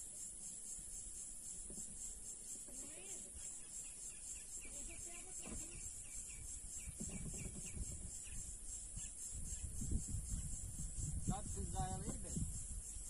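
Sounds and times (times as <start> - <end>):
pulsing insect trill: 0.0 - 13.0
wind rumble on microphone: 5.3 - 13.0.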